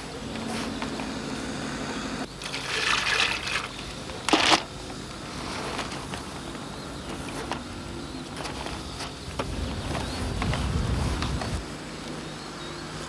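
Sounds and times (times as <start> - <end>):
groundbait kneaded in a plastic bucket: 2.3 - 10.7.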